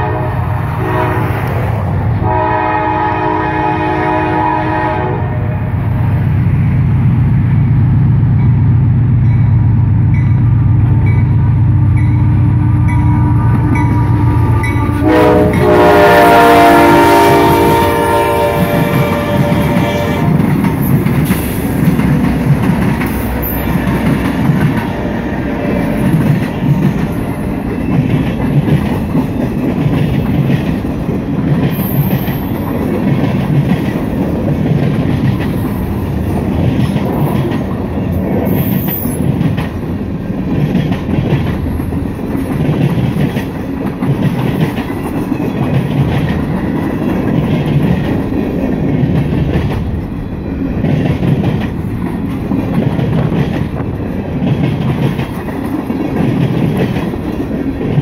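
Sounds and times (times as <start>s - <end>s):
train rumble: 0.0s - 58.0s
train wheels clicking over rail joints: 18.0s - 58.0s.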